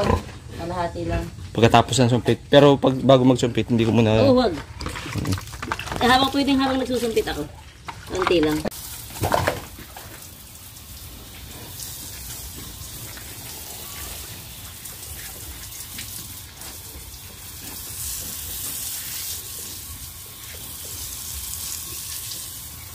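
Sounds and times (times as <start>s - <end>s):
hose water spraying and splashing: 4.3s - 22.9s.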